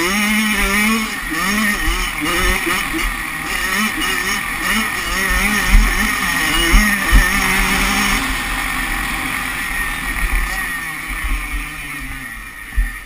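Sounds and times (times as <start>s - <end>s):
motocross bike engine revving: 0.0s - 13.0s.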